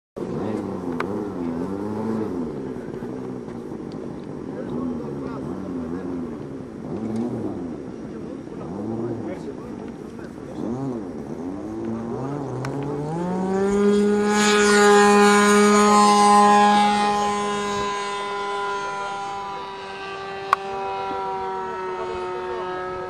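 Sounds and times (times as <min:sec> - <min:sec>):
model plane engine whine: 0:11.1 - 0:23.0.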